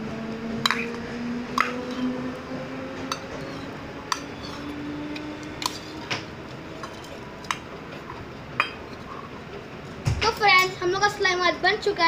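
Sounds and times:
spoon clinking against metal bowl: 0:03.1 - 0:09.2
spoon stirring slime: 0:03.1 - 0:09.4.

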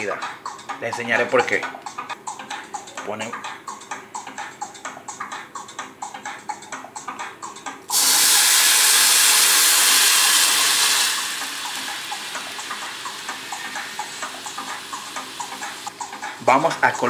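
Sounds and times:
water sizzling on hot rice: 0:07.9 - 0:15.9.

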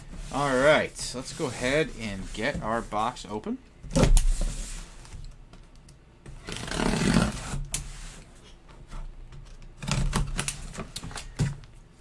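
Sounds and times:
cardboard scraping rustle: 0:00.0 - 0:03.2.

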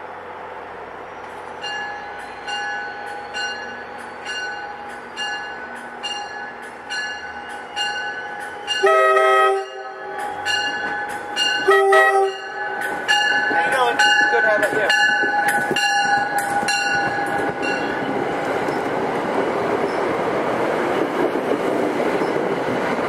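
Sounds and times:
train arriving: 0:00.0 - 0:23.0
bell ringing: 0:01.6 - 0:09.1, 0:09.7 - 0:18.0
train horn blast: 0:08.7 - 0:10.6, 0:11.6 - 0:12.8.

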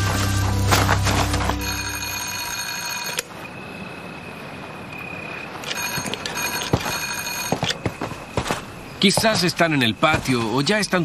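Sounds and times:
intercom doorbell tone: 0:01.6 - 0:03.3, 0:05.7 - 0:07.6.

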